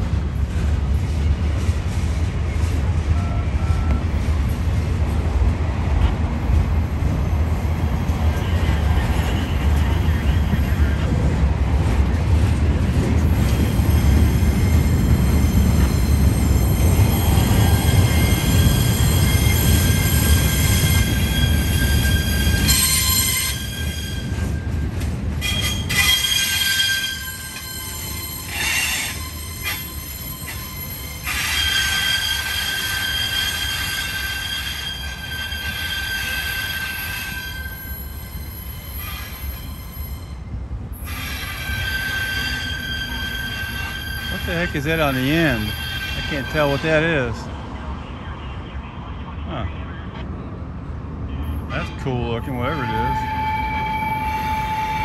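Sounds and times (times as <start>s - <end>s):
train wheels squealing: 13.4s - 47.2s, 51.7s - 55.0s.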